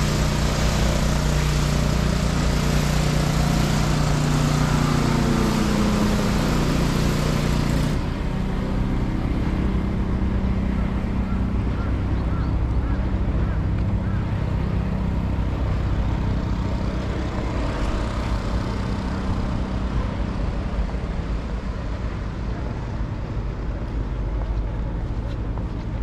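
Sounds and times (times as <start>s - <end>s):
low rumble of traffic: 0.0s - 26.0s.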